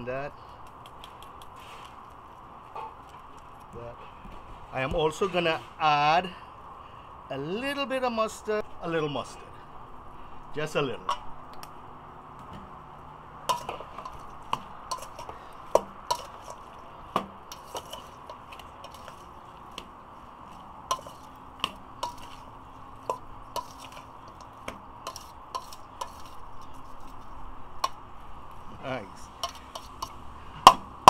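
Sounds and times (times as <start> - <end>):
meat shifting wetly: 13.5 - 26.4.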